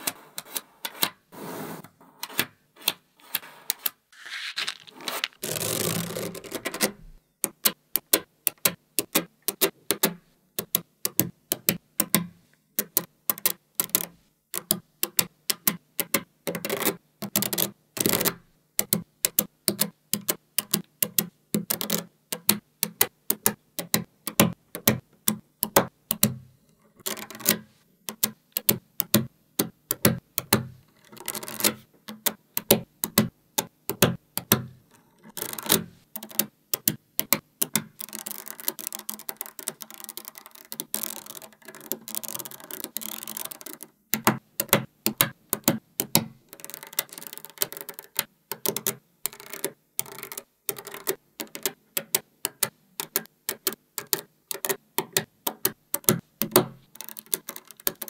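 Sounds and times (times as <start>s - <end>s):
magnet balls rattling: 4.2s - 6.6s
magnet balls clicking: 46.5s - 58.0s.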